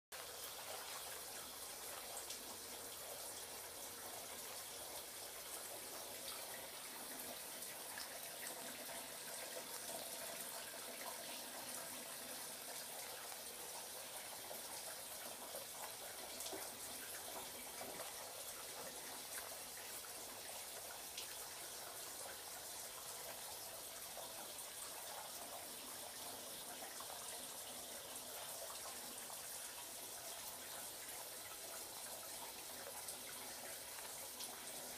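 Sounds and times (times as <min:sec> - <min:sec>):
water stream splashing into basin: 0:00.2 - 0:34.9.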